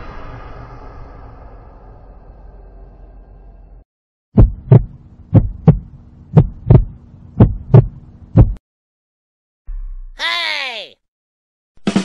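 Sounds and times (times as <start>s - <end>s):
heartbeat thumps: 4.4s - 8.6s.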